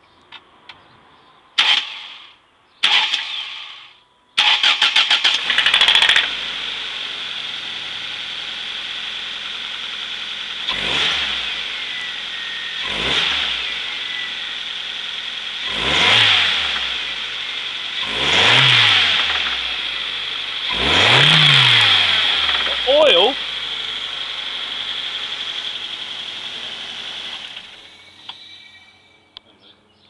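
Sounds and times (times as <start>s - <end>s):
engine revving: 1.6s - 29.1s
starter motor cranking: 4.4s - 6.3s
car engine running: 5.4s - 29.4s.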